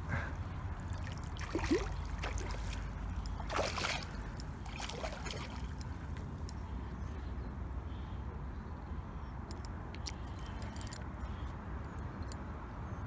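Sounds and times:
fish splashing at water surface: 0:00.9 - 0:05.9.

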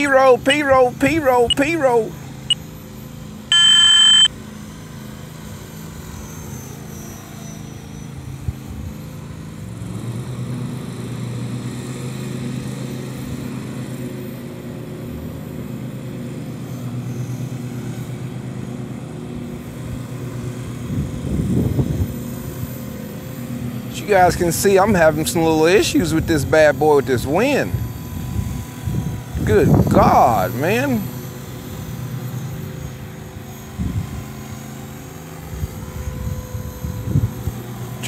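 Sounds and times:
rc helicopter rotor drone: 0:00.0 - 0:38.0
loud electronic beep: 0:01.5 - 0:01.7, 0:03.5 - 0:04.3.

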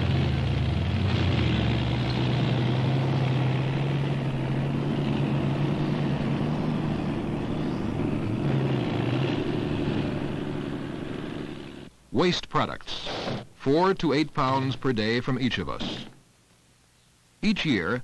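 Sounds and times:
heavy machinery engine running: 0:00.0 - 0:11.9.

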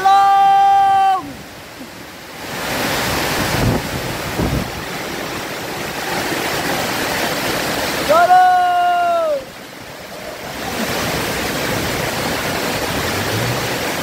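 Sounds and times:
storm wind and rain: 0:00.0 - 0:14.0
wind buffeting microphone: 0:03.0 - 0:07.4.

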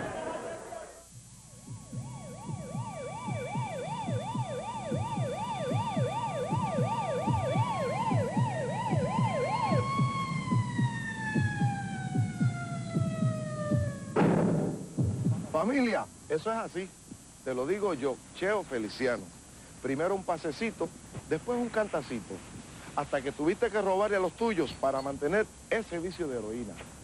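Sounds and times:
low rhythmic thuds: 0:00.0 - 0:27.0
siren wail tone: 0:01.8 - 0:14.2
siren yelp: 0:01.8 - 0:14.2.

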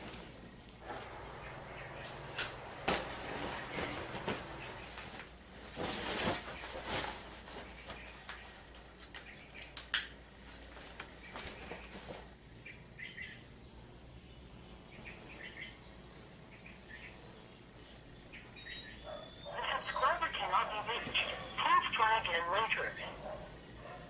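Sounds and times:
cloth rustling: 0:02.0 - 0:08.6.

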